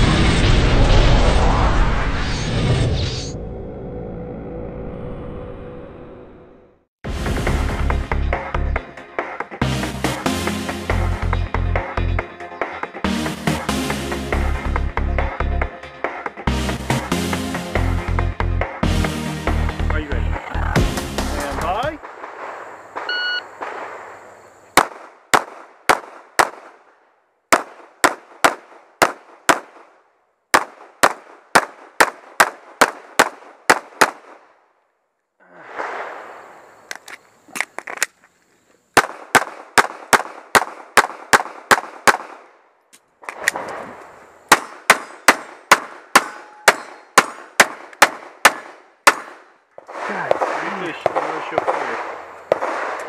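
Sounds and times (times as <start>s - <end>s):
pistol gunshots: 22.0s - 24.2s, 24.8s - 26.8s, 27.5s - 29.9s, 30.5s - 34.4s, 39.0s - 42.6s, 44.5s - 53.0s
shot timer beep: 23.1s - 23.4s.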